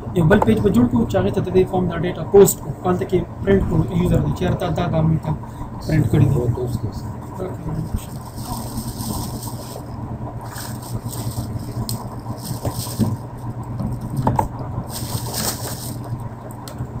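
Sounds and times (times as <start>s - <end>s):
electrical hum with hiss: 0.0s - 17.0s
faint clicks and rustles: 7.7s - 16.8s.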